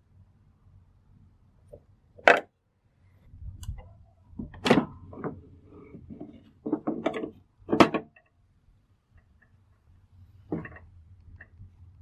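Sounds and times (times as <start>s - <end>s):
plastic clicks and knocks: 3.6s - 8.3s
soft plastic rattles and scrapes: 3.7s - 8.4s, 9.1s - 11.8s.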